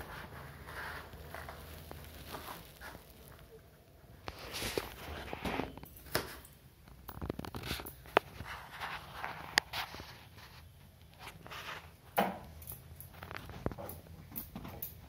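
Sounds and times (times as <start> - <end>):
objects being handled: 4.2 - 15.0.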